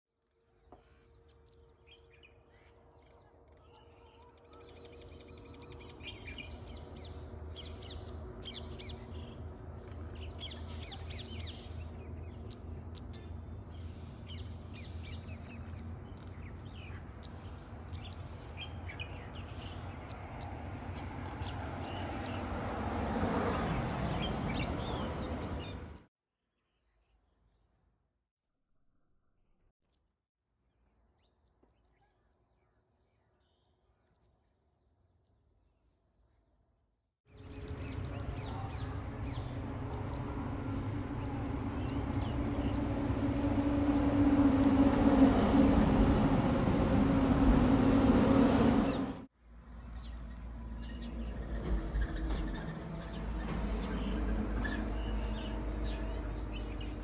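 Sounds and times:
small birds chirping: 0.4 - 26.1, 31.1 - 35.4, 37.3 - 43.5, 45.3 - 47.3, 48.9 - 57.0
steady low rumble: 37.4 - 49.3.

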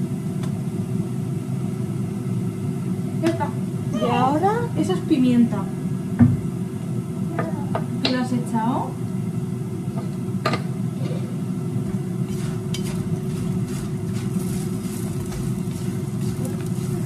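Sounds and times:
steady low hum: 0.0 - 17.0
food sizzling in a pan: 12.3 - 17.0.

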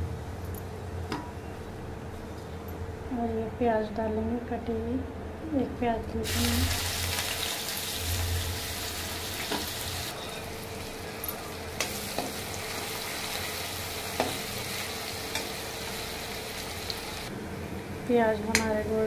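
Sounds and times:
onions sizzling in oil: 6.2 - 17.3.

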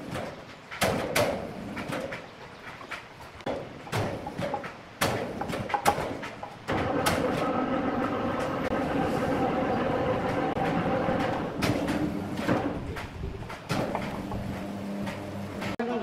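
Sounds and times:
wooden slab knocks: 0.2 - 7.3
electric hoist running: 6.7 - 15.8.

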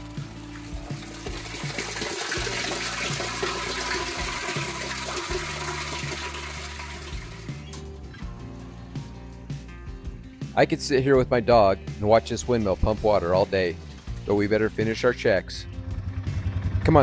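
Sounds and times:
water pouring and splashing: 0.0 - 7.6, 12.1 - 15.1.

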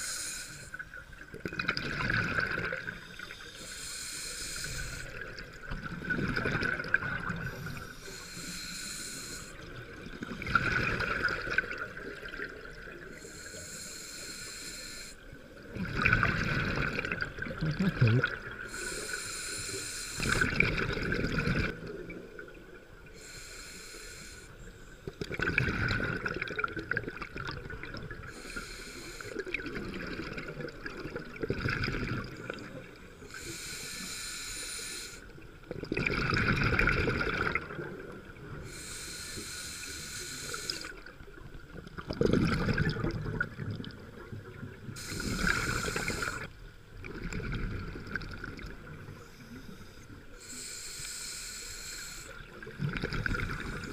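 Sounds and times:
regulator inhalation hiss: 0.0 - 0.9, 3.0 - 5.1, 7.4 - 9.6, 13.1 - 15.2, 18.7 - 20.4, 23.2 - 24.9, 28.3 - 29.5, 33.2 - 35.3, 38.6 - 41.0, 45.0 - 46.5, 49.1 - 52.6
bursts of bubbles: 35.8 - 37.8, 42.0 - 43.9.

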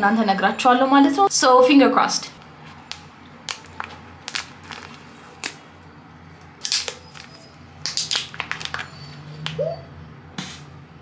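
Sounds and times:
plastic pouch crinkling and tearing: 2.6 - 5.7, 6.6 - 9.0.

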